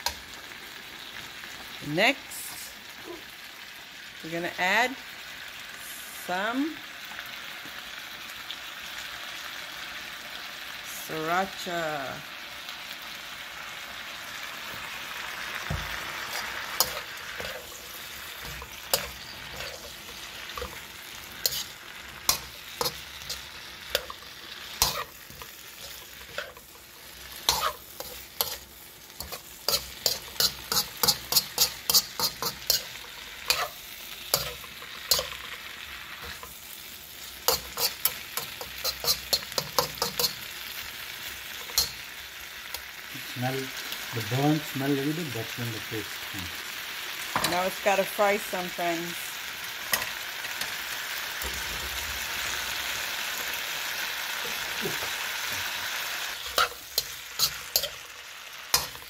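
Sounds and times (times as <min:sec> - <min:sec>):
vegetables sizzling in a wok: 0:00.0 - 0:59.0
metal spatula scraping and clinking: 0:16.2 - 0:35.6, 0:37.4 - 0:40.8, 0:41.5 - 0:42.0, 0:56.4 - 0:59.0.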